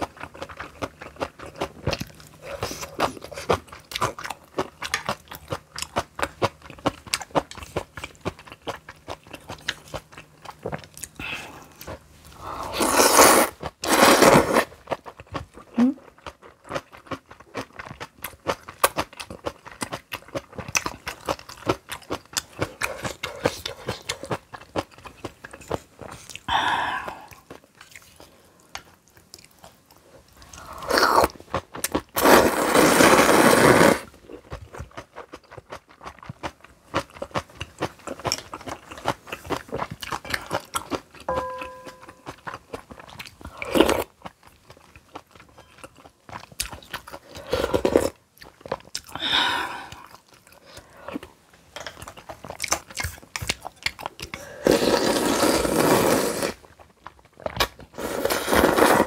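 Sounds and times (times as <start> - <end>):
chewing and crunching: 0.0 - 12.4, 14.5 - 26.5, 27.1 - 32.2, 34.1 - 59.0
ringing clink: 41.3 - 42.3.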